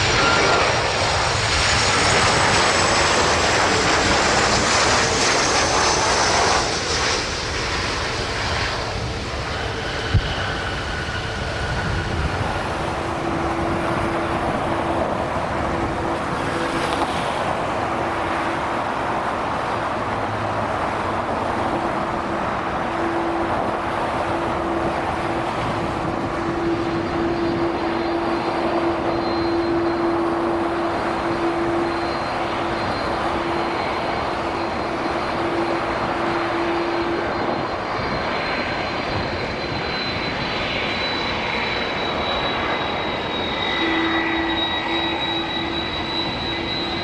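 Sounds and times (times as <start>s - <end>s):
faint high whine: 0.0s - 19.0s, 21.7s - 47.0s
jet engines idling rush: 0.0s - 47.0s.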